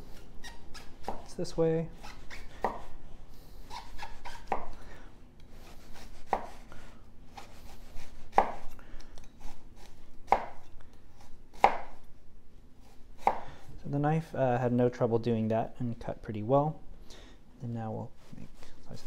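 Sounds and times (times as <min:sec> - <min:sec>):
knife slicing onion on board: 0:00.1 - 0:01.4, 0:02.0 - 0:03.0, 0:03.7 - 0:04.8, 0:05.5 - 0:06.7, 0:07.3 - 0:12.1, 0:12.8 - 0:13.6.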